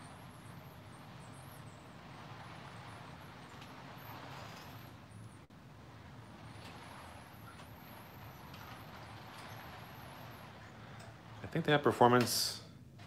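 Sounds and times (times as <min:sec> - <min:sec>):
thin high squeaks: 0:00.0 - 0:11.5
model train wheels rumbling on rail: 0:00.0 - 0:13.0.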